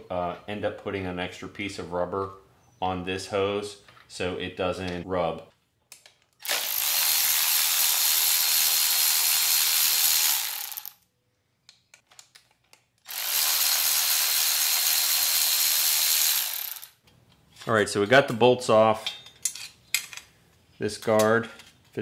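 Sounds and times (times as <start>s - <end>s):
electric ratchet running: 6.4s - 11.0s, 13.1s - 17.0s.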